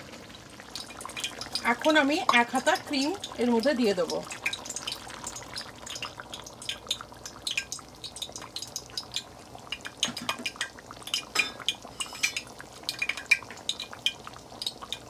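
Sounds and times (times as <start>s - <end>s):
hot oil crackling and spitting: 0.0s - 15.0s
utensils clinking against pan: 10.0s - 13.5s.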